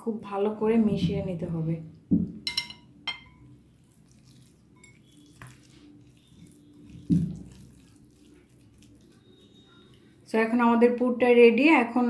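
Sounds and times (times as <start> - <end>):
metal spoon clinking ceramic bowl: 2.4 - 3.6, 4.8 - 6.2
filling mixed by hand: 3.8 - 10.2.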